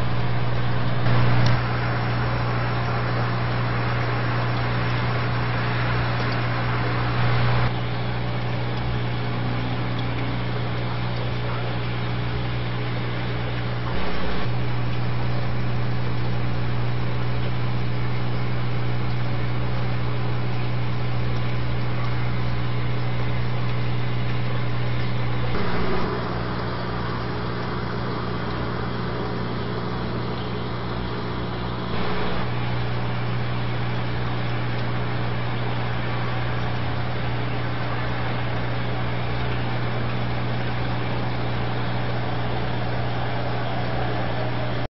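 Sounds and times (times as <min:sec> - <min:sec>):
constant hiss: 0:00.0 - 0:44.9
low electrical hum: 0:00.0 - 0:44.9.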